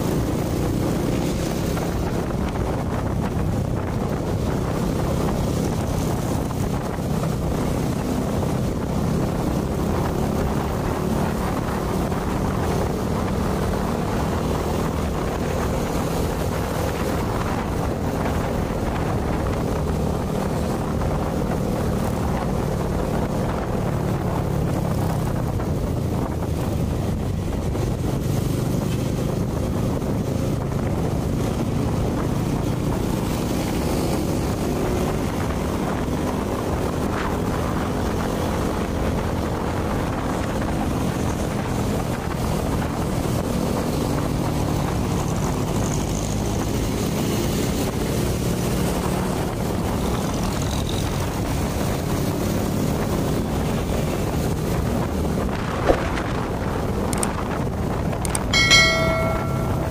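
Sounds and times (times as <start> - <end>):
wind noise on microphone: 0.0 - 59.9
motorbike engine droning: 58.2 - 59.9.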